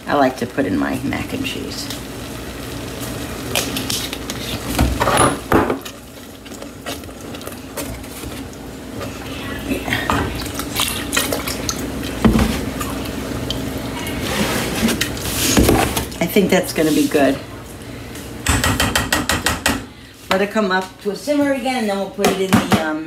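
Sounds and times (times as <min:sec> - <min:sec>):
utensil scraping a pot: 0:14.0 - 0:15.6.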